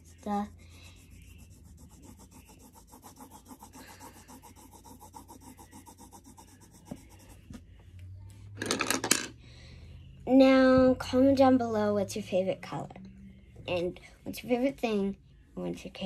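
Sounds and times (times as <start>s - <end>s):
coloring tool scribbling on paper: 0.0s - 7.6s.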